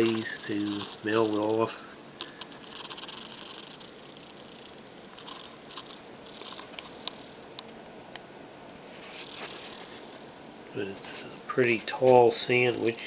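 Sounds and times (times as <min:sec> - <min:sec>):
soft handling rustling: 0:00.0 - 0:02.4, 0:08.8 - 0:13.0.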